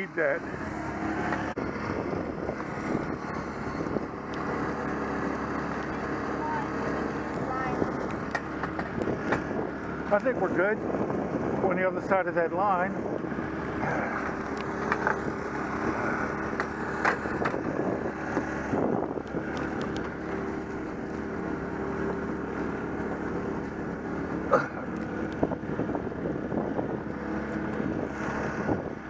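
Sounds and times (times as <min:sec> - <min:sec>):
engine running steadily: 0:00.0 - 0:29.0
knocks and clatter: 0:08.0 - 0:09.6, 0:16.4 - 0:17.8.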